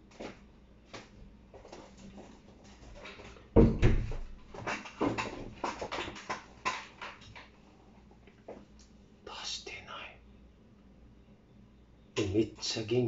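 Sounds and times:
light knocks and clatters: 1.6 - 7.6.

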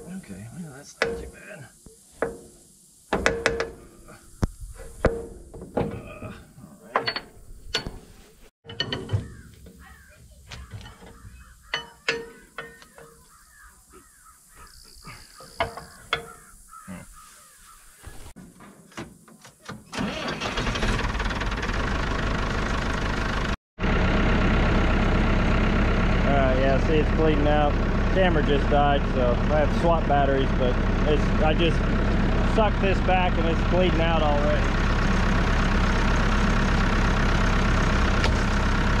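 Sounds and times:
metal clanks: 1.0 - 1.4, 2.2 - 4.1, 4.8 - 13.4, 15.4 - 16.5.

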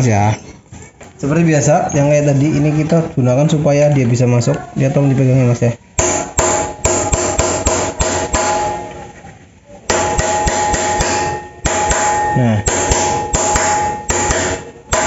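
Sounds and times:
hammer striking metal: 6.0 - 9.1, 9.9 - 15.0.

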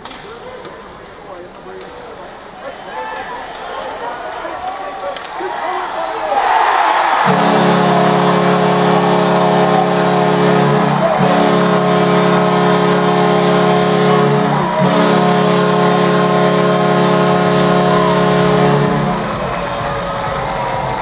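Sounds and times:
goal horn blast: 7.0 - 21.0.

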